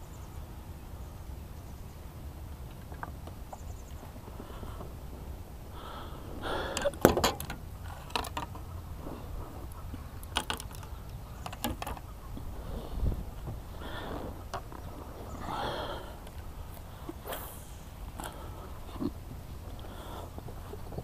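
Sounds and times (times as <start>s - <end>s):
fishing rods and reels clattering: 6.6s - 8.8s, 10.2s - 12.1s.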